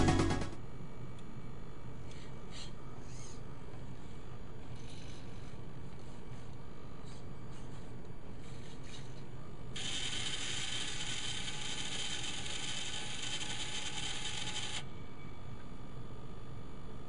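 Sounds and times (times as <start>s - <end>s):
faint servo motors: 2.0s - 15.6s
motor spinning wheel: 9.8s - 14.8s.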